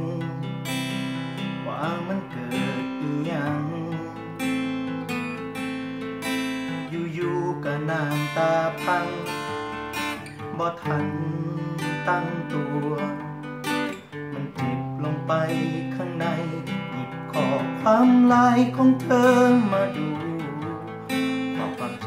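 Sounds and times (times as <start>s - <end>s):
acoustic guitar strumming and picking: 0.0s - 22.0s.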